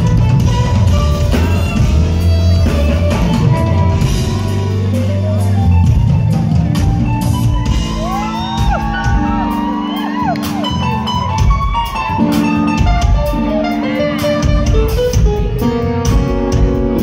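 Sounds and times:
band with drums bass and keyboards: 0:00.0 - 0:17.0.

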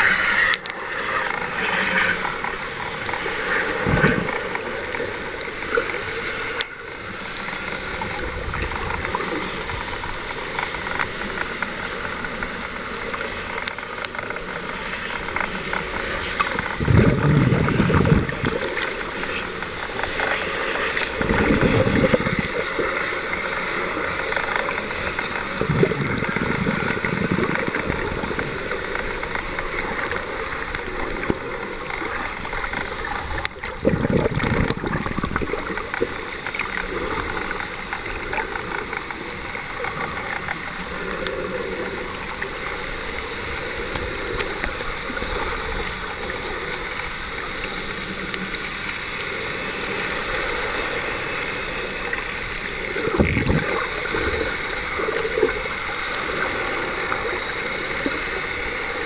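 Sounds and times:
muffled underwater sloshing: 0:00.0 - 0:59.0.

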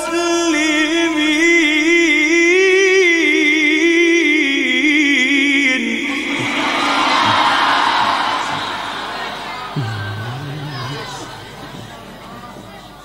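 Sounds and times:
man chanting recitation: 0:00.0 - 0:08.7, 0:09.7 - 0:13.0
audience calling out: 0:06.0 - 0:13.0.

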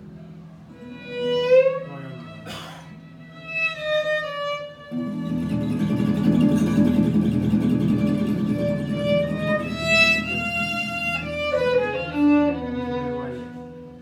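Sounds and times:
acoustic guitar: 0:00.7 - 0:14.0
bowed violin melody: 0:00.7 - 0:14.0
upright double bass: 0:05.0 - 0:13.0.

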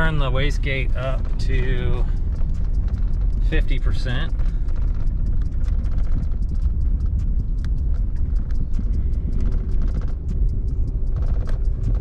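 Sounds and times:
engine low rumble: 0:00.0 - 0:12.0
sharp clicks: 0:00.0 - 0:12.0.

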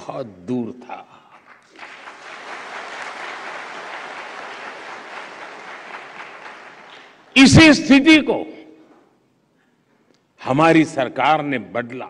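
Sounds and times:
audience applauding: 0:01.4 - 0:07.3.

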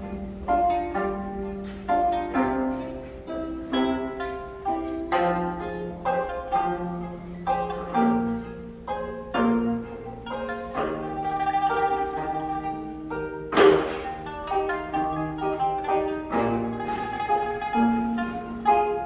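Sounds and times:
plucked string trio melody: 0:00.0 - 0:19.0.

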